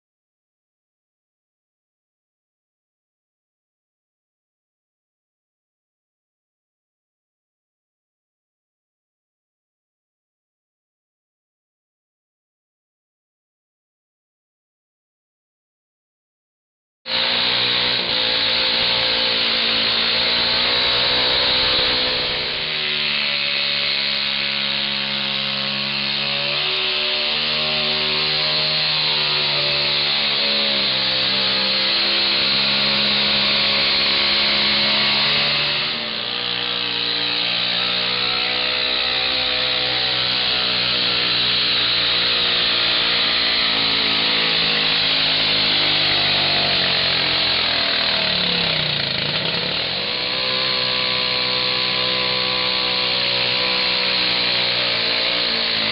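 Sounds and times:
tractor engines revving high: 17.1s - 55.9s.

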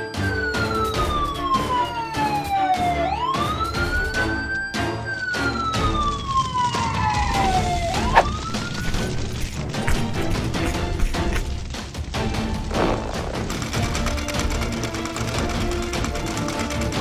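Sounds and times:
fire engine siren wailing: 0.0s - 10.6s
background music with steady beat: 0.0s - 17.0s.

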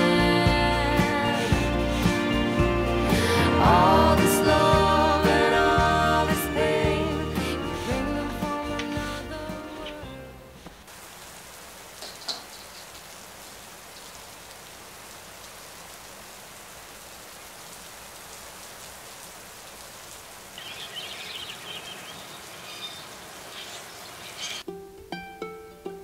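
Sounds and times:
steady rain hissing: 0.0s - 24.7s
high bird chirps: 20.5s - 24.6s.

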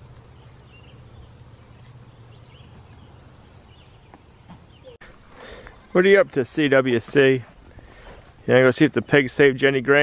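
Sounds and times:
low steady hum: 0.0s - 9.4s
faint bird chirps: 0.2s - 5.9s.

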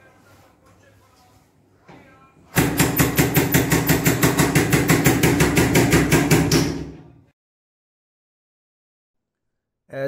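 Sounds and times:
rapid knocking on door: 2.6s - 6.9s.

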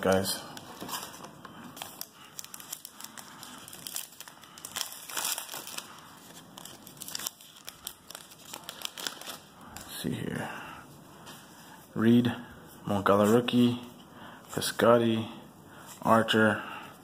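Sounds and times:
plastic wrapper crinkling and tearing: 0.0s - 10.0s.

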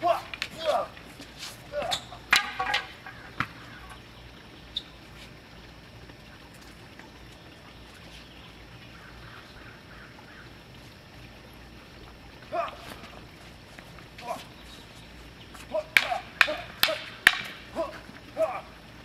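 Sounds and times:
faint bird chirps: 3.1s - 5.1s.

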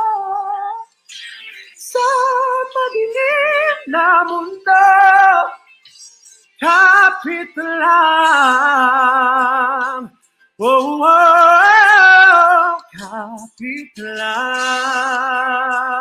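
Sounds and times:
man singing with vibrato: 0.0s - 5.7s, 6.6s - 16.0s.

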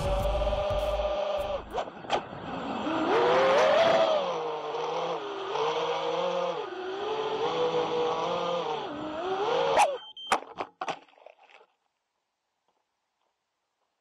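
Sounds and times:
drone motors whining: 0.0s - 10.3s.

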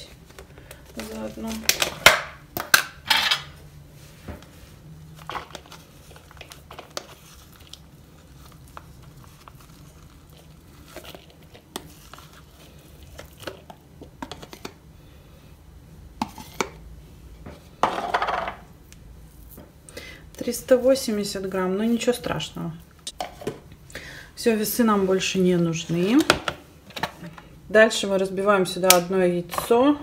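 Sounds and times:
plastic tub crinkling: 0.0s - 2.8s, 5.1s - 14.8s.

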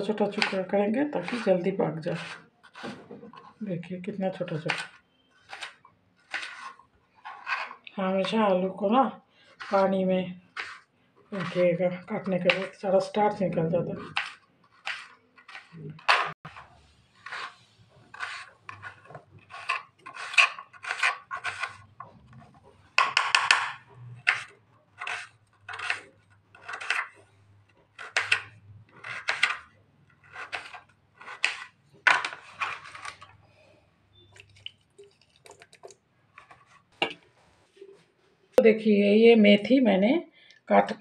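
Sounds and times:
knife scraping strokes: 0.4s - 3.6s, 4.6s - 7.8s, 10.5s - 11.7s, 14.0s - 22.4s, 24.2s - 27.3s.

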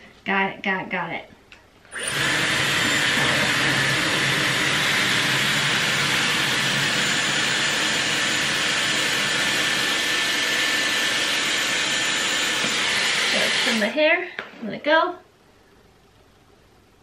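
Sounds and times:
hair styler blowing air: 1.9s - 14.0s.

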